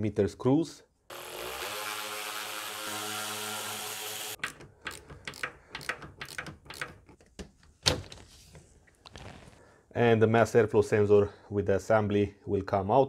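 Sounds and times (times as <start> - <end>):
power driver running: 1.1 - 5.0.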